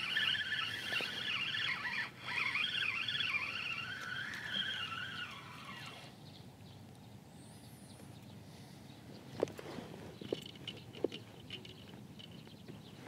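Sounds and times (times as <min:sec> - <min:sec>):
fishing reel whirring: 0:00.0 - 0:06.1.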